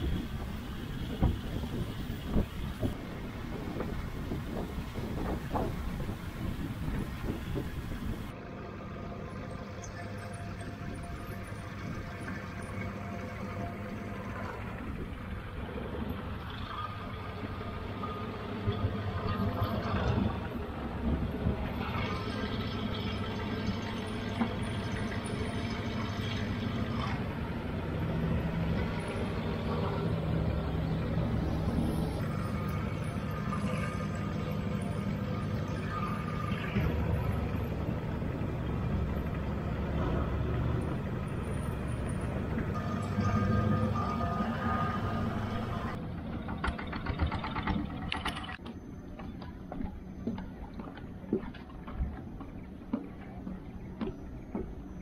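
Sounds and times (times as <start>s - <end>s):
boat engine running: 0.0s - 8.3s, 9.3s - 55.0s
wind rush: 0.0s - 8.3s.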